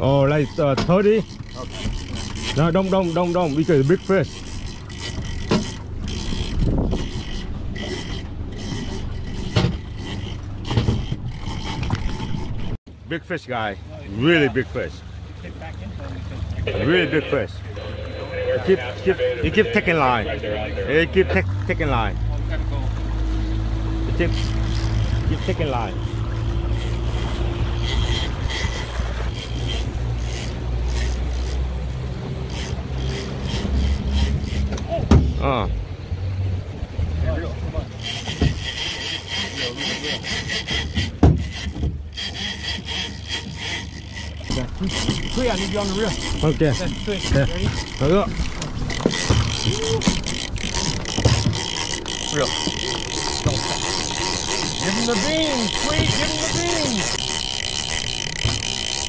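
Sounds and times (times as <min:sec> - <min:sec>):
gear knocking against boat: 0:00.0 - 0:12.8, 0:37.8 - 0:59.0
boat engine rumbling: 0:00.0 - 0:59.0
fishing reel drag whining: 0:00.1 - 0:12.8, 0:21.7 - 0:35.0, 0:37.4 - 0:59.0.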